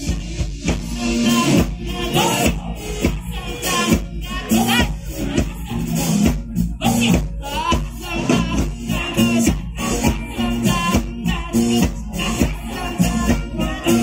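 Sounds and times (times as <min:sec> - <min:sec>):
live band with singing: 0:00.0 - 0:14.0.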